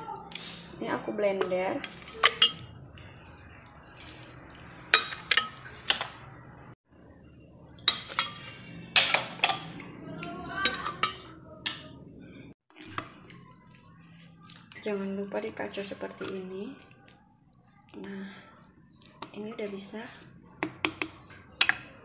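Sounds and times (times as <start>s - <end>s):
spoon clinking on metal and glass: 1.8s - 2.8s, 4.9s - 5.8s, 7.7s - 9.8s.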